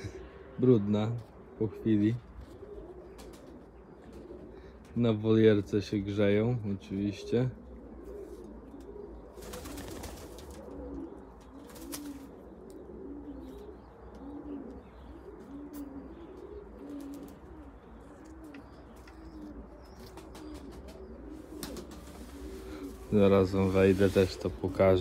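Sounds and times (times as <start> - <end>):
pigeons cooing: 0.0 - 25.0
rustling: 18.3 - 25.0.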